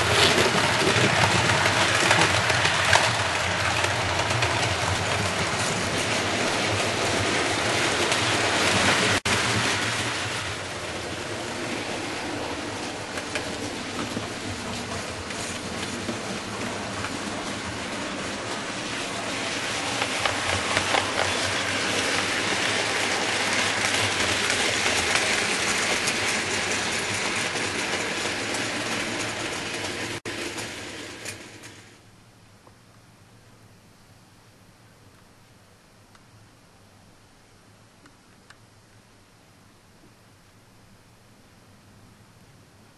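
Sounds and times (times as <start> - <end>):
model train wheels rattling on track: 0.0 - 32.0.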